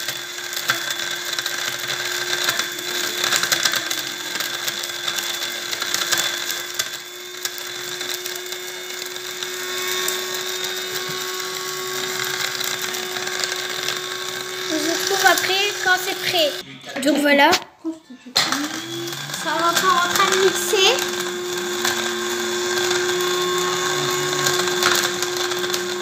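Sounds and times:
electric blade grinder running: 0:00.0 - 0:16.6, 0:18.4 - 0:26.0.

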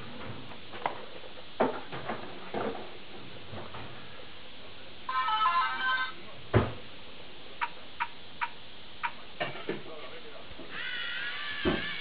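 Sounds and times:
thump: 0:06.5 - 0:06.8.

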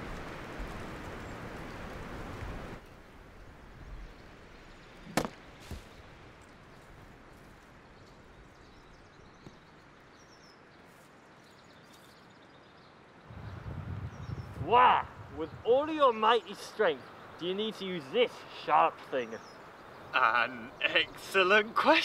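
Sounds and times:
faint outdoor background: 0:00.0 - 0:22.0
axe striking wooden stump: 0:05.1 - 0:05.4.

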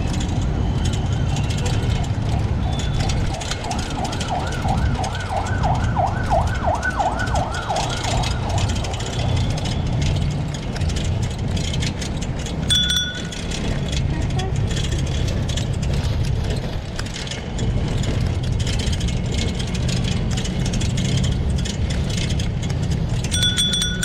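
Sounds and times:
wind and riding noise rumble: 0:00.0 - 0:24.0
emergency vehicle siren yelping: 0:00.1 - 0:09.8.

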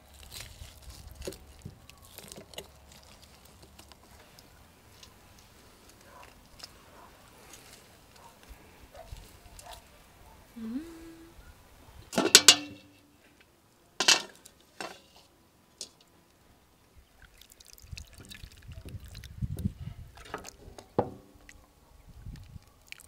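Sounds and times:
metal lid clanking on cauldron: 0:12.2 - 0:13.1.

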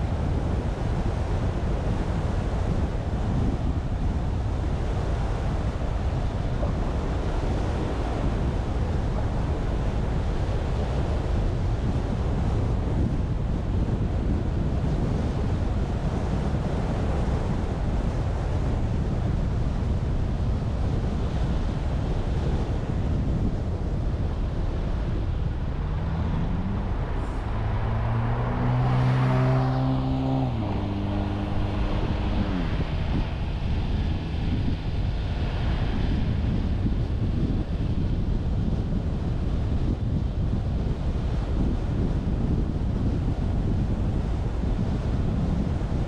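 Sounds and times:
car wind and road noise: 0:00.0 - 0:46.0
wind buffeting microphone: 0:00.0 - 0:46.0
vehicle passing by: 0:24.4 - 0:36.2.

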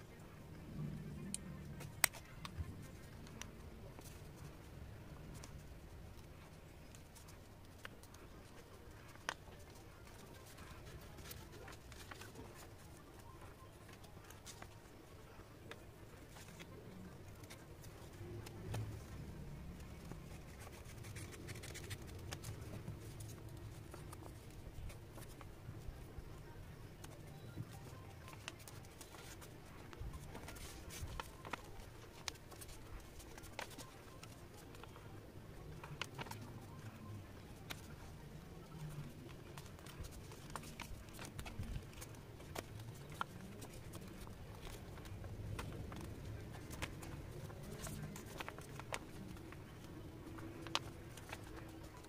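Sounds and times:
paper rustling and scraping: 0:06.4 - 0:25.5, 0:27.0 - 0:52.0
paper tube handling clicks: 0:19.8 - 0:24.5, 0:38.8 - 0:52.0.

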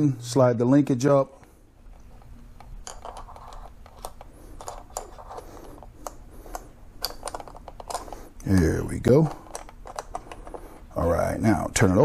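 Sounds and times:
small metallic clicks and scrapes: 0:01.9 - 0:10.8.

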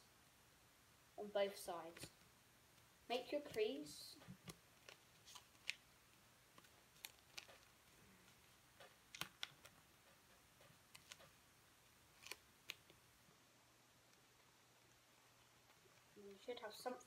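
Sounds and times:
paper folding crinkles: 0:03.4 - 0:13.1, 0:13.8 - 0:16.7.

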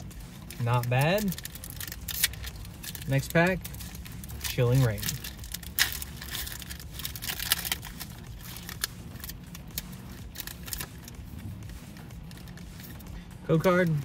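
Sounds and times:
foil wrapper crinkling and tearing: 0:00.0 - 0:14.0.

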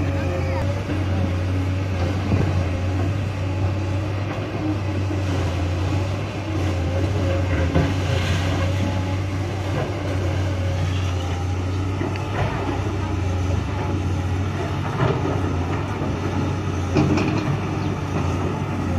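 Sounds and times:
excavator diesel engine humming: 0:00.0 - 0:18.9.

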